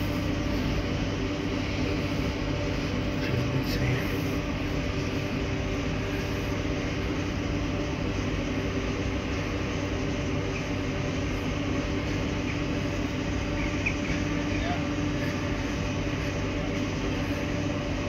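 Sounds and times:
electric locomotive hum: 0:00.0 - 0:18.0.

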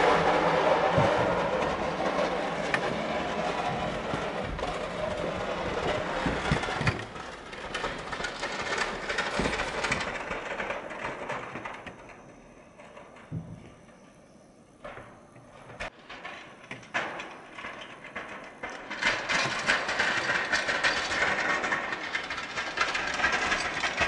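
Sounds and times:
plow blade scraping snow: 0:00.0 - 0:10.3.

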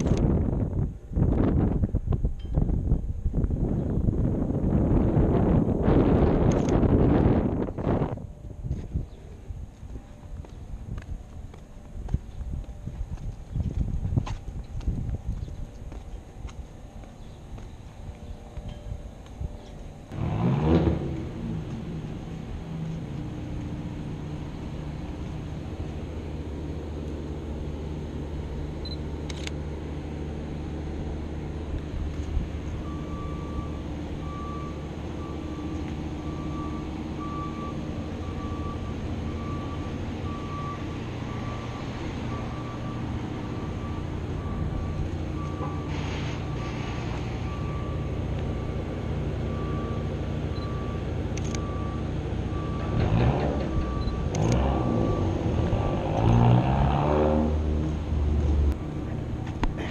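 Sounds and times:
street traffic: 0:00.0 - 0:59.9
vehicle passing: 0:20.0 - 0:59.9
electronic beep: 0:49.5 - 0:53.0, 0:53.7 - 0:56.0.

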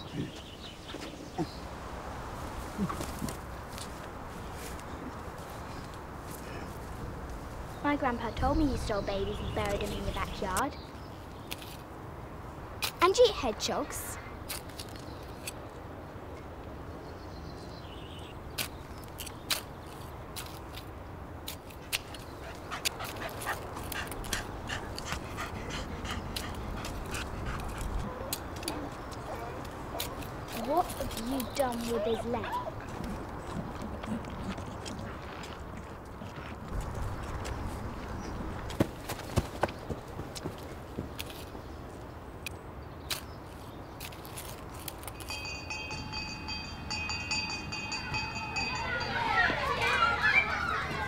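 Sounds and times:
dog panting and whimpering: 0:22.4 - 0:28.3
bell-like music tones: 0:45.2 - 0:50.4.

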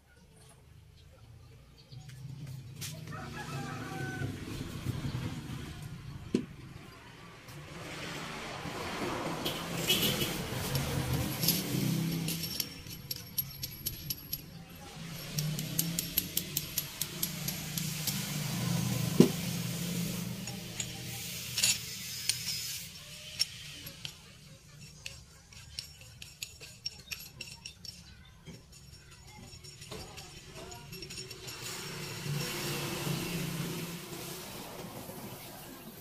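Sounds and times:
metallic clinks of steel parts: 0:09.9 - 0:18.5, 0:19.6 - 0:32.7.

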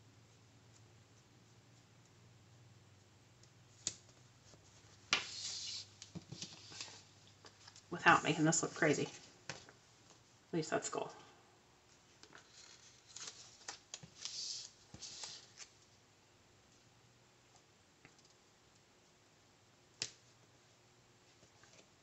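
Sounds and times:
paper rustling: 0:12.2 - 0:15.9.

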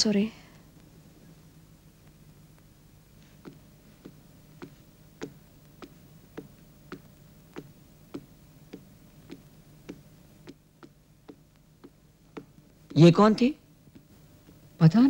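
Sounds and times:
low steady hum: 0:00.0 - 0:15.0
footsteps on stone floor: 0:03.2 - 0:14.6.

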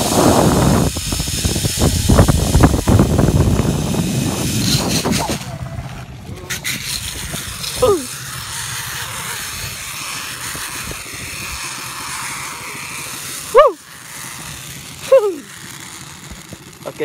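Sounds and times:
rushing wind: 0:00.0 - 0:12.0
zipline trolley whirring on cable: 0:00.0 - 0:17.0
person crying out: 0:07.8 - 0:08.2, 0:13.5 - 0:13.8, 0:15.0 - 0:15.5.

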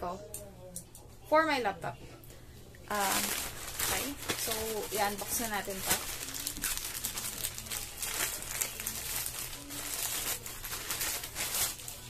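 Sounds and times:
plastic pouch crinkling: 0:02.9 - 0:12.0.

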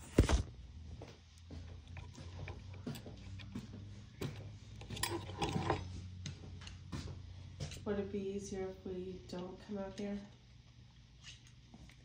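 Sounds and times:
faint clicks and handling knocks: 0:01.5 - 0:07.8.

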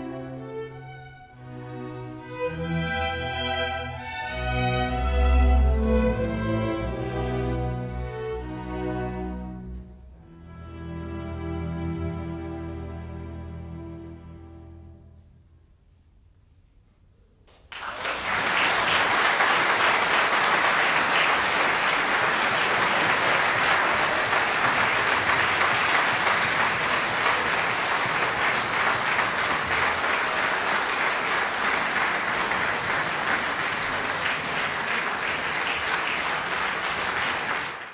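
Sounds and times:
audience applauding: 0:17.5 - 0:37.9.

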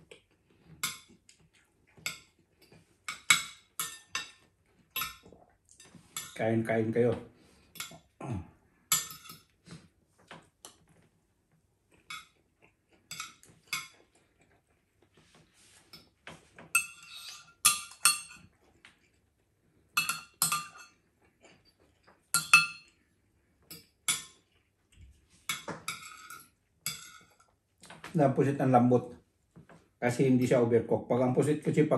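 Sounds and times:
cutlery clinking on a ceramic plate: 0:01.9 - 0:06.4, 0:07.8 - 0:08.1, 0:08.9 - 0:09.5, 0:12.0 - 0:12.4, 0:13.1 - 0:14.1, 0:15.9 - 0:18.5, 0:20.0 - 0:23.0, 0:23.7 - 0:24.6, 0:25.5 - 0:27.6.

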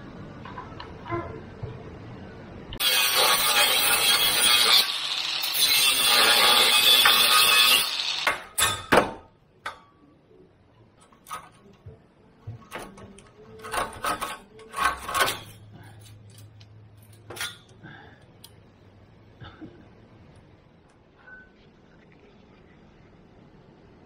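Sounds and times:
angle grinder cutting metal: 0:02.8 - 0:08.6
metal clanks and clatter: 0:12.6 - 0:17.7.

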